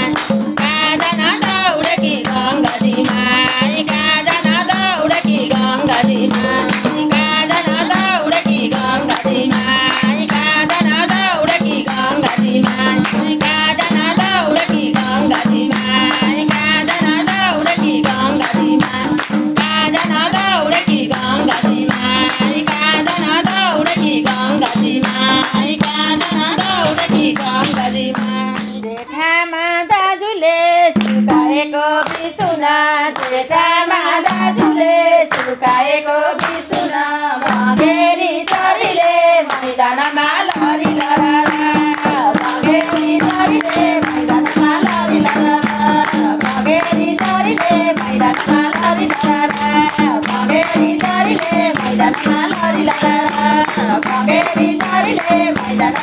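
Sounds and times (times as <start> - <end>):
hand clapping: 0.0 - 29.1, 31.0 - 56.0
hand drum: 0.0 - 29.1, 30.9 - 56.0
group singing folk song: 0.0 - 56.0.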